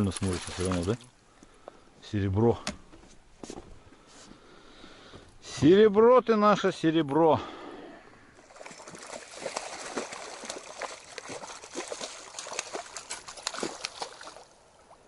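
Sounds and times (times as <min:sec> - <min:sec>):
fish splashing at water surface: 0:00.0 - 0:01.1, 0:08.4 - 0:15.0.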